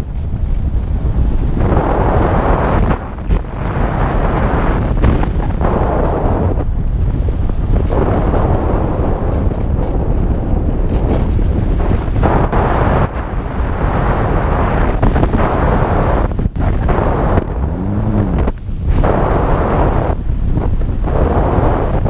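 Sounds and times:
wind buffeting microphone: 0.0 - 22.0
electric motor whine: 16.9 - 19.6.

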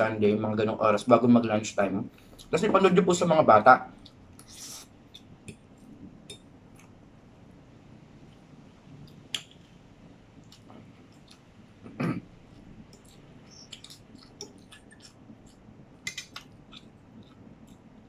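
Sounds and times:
person chewing food: 10.4 - 18.0
swallow or throat clearing: 11.8 - 12.3
wet mouth clicks and smacks: 12.9 - 17.5.

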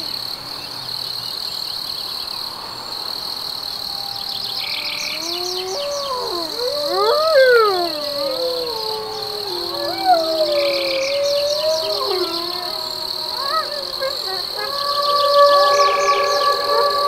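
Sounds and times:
crickets chirring: 0.0 - 17.0
wolves howling: 3.8 - 17.0.

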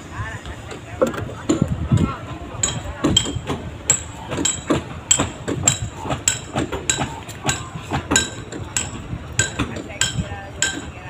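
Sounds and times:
hammer blows on wooden hull: 2.6 - 11.0.

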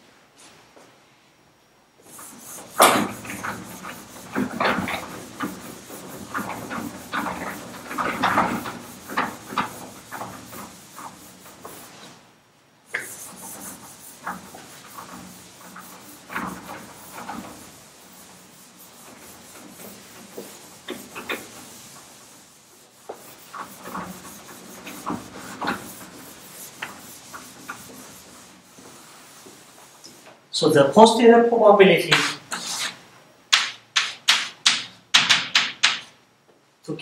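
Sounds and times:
sponge wiping chalkboard: 2.1 - 12.2, 12.9 - 30.3, 32.0 - 33.0.

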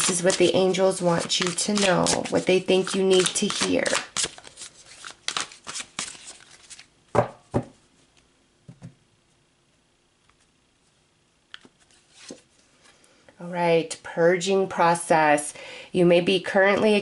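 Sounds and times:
cards being shuffled: 0.0 - 6.9
cards knocked on table: 7.1 - 7.8.

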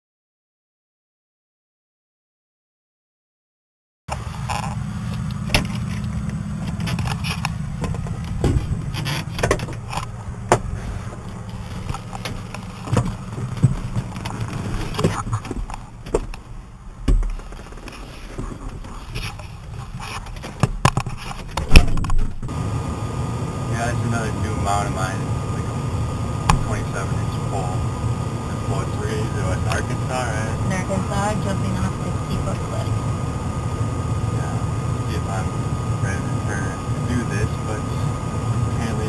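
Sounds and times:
diesel engine humming: 4.1 - 39.0
knocks and clatters in cab: 5.4 - 22.5.

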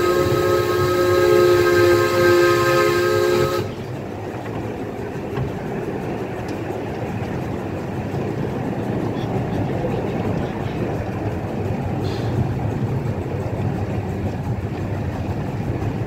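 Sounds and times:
steam locomotive whistle: 0.0 - 3.8
train rolling along track: 0.0 - 16.0.

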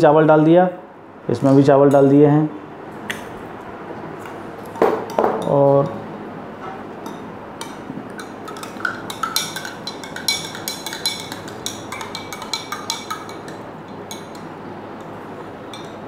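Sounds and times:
spoon clinking against glass: 7.1 - 14.5, 15.7 - 16.0.

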